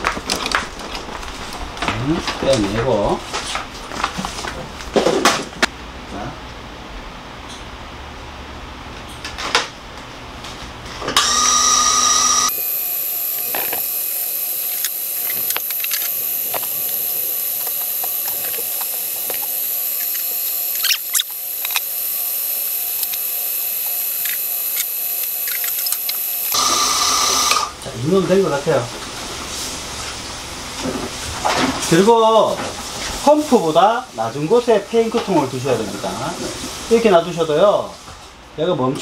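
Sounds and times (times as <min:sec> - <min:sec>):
small electric motor whining: 0:11.2 - 0:27.8.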